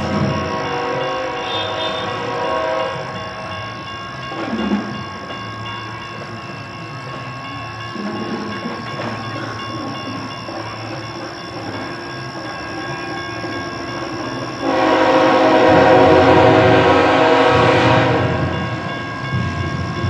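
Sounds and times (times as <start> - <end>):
locomotive air horn: 0.0 - 3.4, 14.6 - 18.5
freight train approaching: 0.0 - 20.0.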